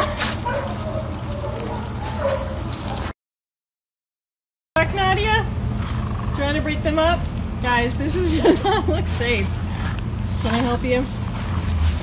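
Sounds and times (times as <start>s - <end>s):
rustling: 9.7s - 12.0s.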